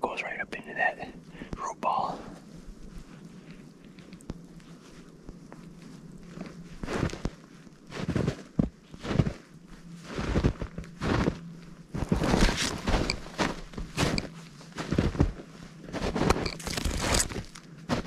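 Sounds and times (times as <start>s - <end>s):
footsteps in snow: 1.9s - 18.0s
pushing through brush: 16.3s - 17.6s.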